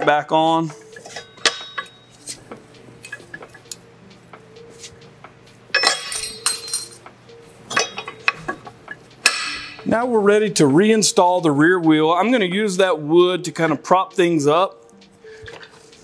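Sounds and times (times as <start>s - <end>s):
metallic clinks and taps: 1.0s - 2.4s, 5.7s - 7.1s, 7.7s - 9.9s
metal rattle: 5.8s - 7.0s.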